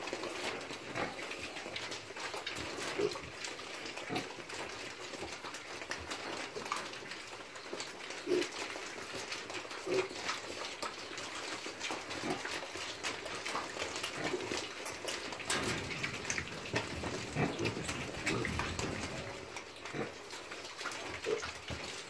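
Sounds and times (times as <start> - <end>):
trotters clicking on concrete: 0.0 - 22.0
piglets grunting: 8.2 - 8.6, 9.8 - 10.3, 14.0 - 21.9.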